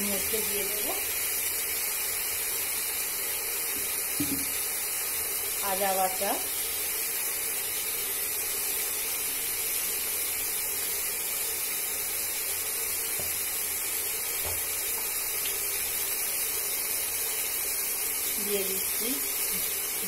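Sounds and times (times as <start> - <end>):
paste sizzling in oil: 0.0 - 20.0
wooden spatula taps: 3.8 - 4.5.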